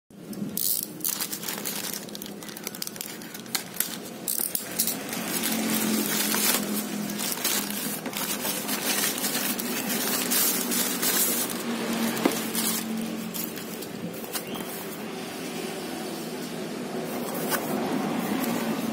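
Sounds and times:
plastic mailer bag crinkling and tearing: 0:00.6 - 0:15.0.

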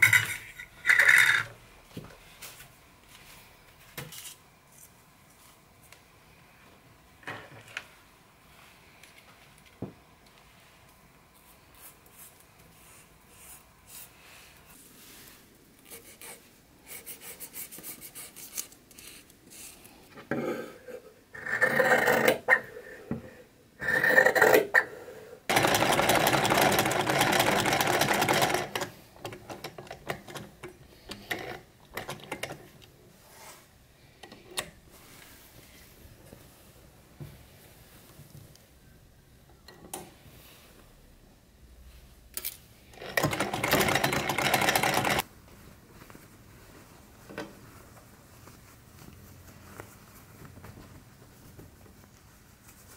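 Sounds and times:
sewing machine clicking: 0:25.5 - 0:32.7, 0:43.0 - 0:45.2.

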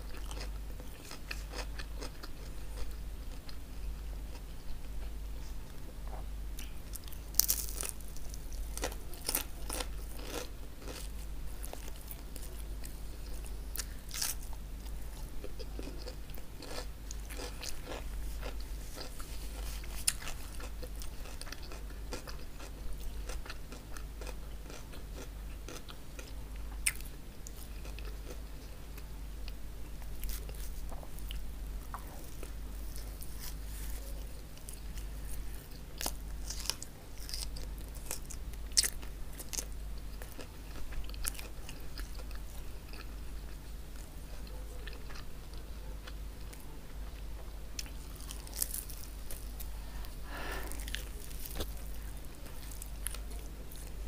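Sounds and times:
quiet chewing: 0:00.0 - 0:54.0
steady low hum: 0:00.0 - 0:54.0
crunching bread crust: 0:06.1 - 0:28.5, 0:30.0 - 0:43.6, 0:47.8 - 0:54.0.

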